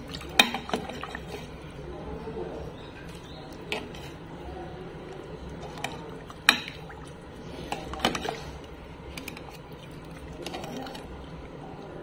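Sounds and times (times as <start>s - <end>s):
soup being ladled: 0.0s - 12.0s
metal utensils clinking on dishes: 7.6s - 8.5s, 9.1s - 9.7s.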